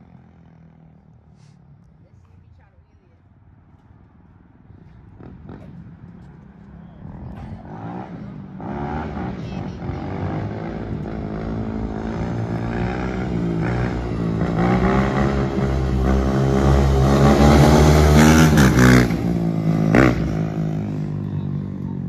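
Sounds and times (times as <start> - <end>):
dirt bike engine accelerating: 7.1 - 22.0.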